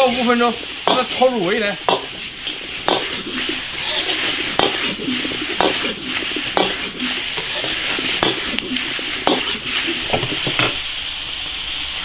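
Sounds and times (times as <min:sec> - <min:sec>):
metal spatula scraping a wok: 0:00.0 - 0:10.8
meat sizzling in a wok: 0:00.0 - 0:12.0.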